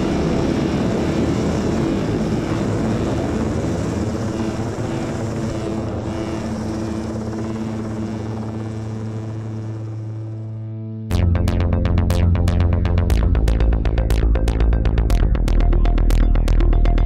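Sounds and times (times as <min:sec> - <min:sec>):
helicopter rotor noise: 0:00.0 - 0:10.5.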